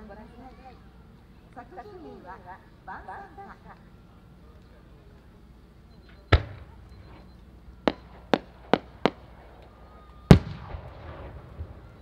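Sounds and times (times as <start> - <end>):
firework bangs: 6.3 - 12.0
firework crackle: 7.8 - 12.0.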